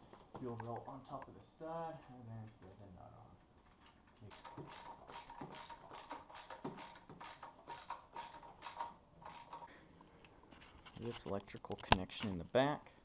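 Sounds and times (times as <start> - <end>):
ratchet wrench clicking: 4.3 - 9.7.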